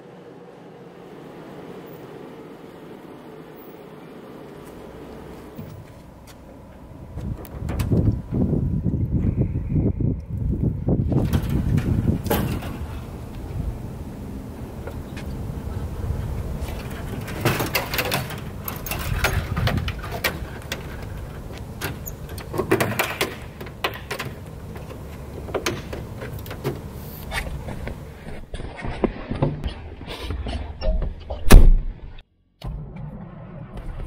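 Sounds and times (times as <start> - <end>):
low wind rumble: 0.0 - 28.9
clicks and rattles of handled aircraft parts: 11.1 - 13.4, 16.4 - 29.6.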